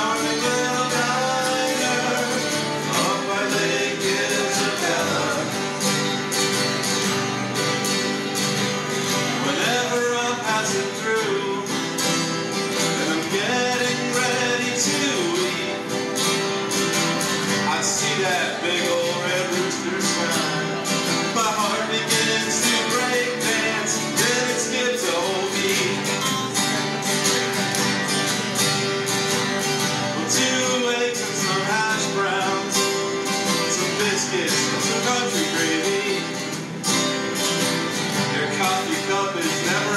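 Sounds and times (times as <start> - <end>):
men singing: 0.0 - 6.2, 9.1 - 16.4, 17.4 - 26.7, 29.9 - 36.7, 38.1 - 39.9
acoustic guitars strumming: 0.0 - 39.9.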